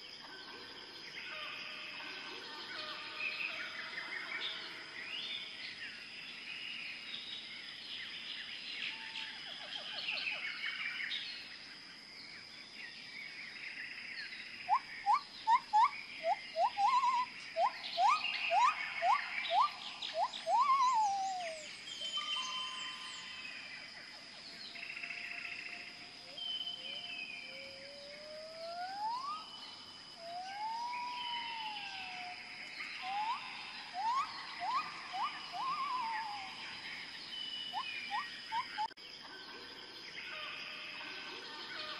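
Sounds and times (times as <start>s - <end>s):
birds chirping: 14.3s - 39.0s
quick rising whistled notes: 18.0s - 21.6s, 34.0s - 36.4s.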